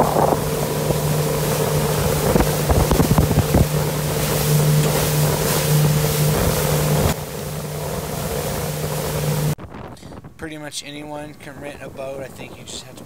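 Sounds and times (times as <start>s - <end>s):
outboard motor running: 0.0s - 9.6s
water rushing: 0.0s - 9.6s
wind buffeting microphone: 0.0s - 13.0s.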